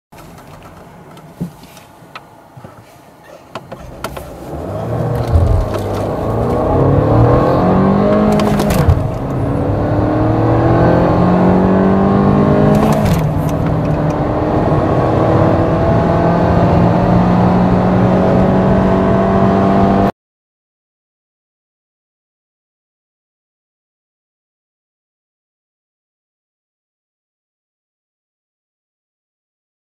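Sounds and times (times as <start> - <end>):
car engine accelerating: 3.5 - 20.1.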